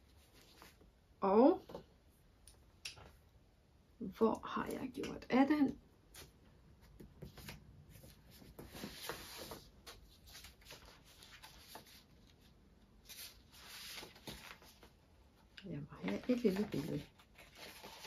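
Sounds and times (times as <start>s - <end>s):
paper sheets leafed through: 7.2s - 18.0s.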